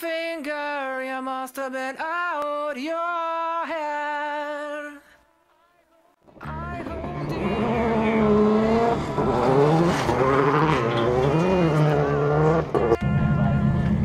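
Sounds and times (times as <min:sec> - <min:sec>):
rally car engine revving: 0:06.4 - 0:14.0.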